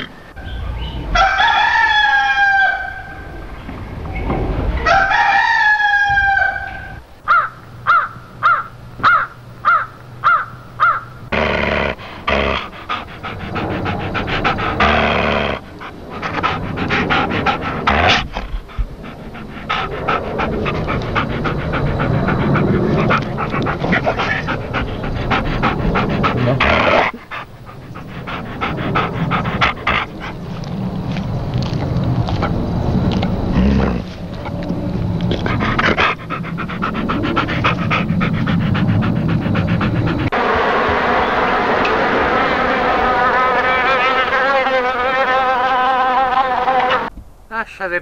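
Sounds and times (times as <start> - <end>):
animal calls: 0.0 - 30.8.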